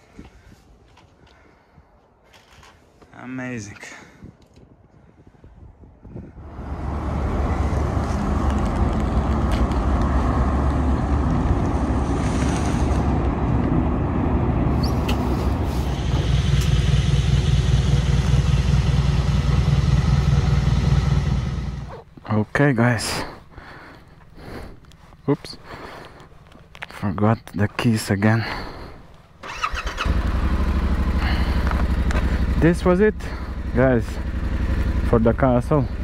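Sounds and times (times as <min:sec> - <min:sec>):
vehicle engine running: 0:06.4 - 0:22.0, 0:29.5 - 0:36.0.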